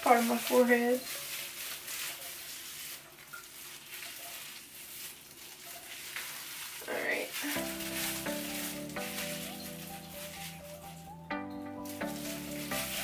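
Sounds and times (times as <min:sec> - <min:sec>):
wet rustling of gloved hands: 0:00.0 - 0:13.0
music with steady tones: 0:07.6 - 0:13.0.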